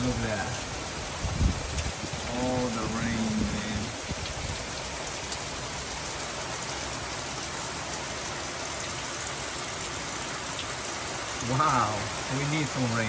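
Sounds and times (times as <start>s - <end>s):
heavy rain: 0.0s - 13.0s.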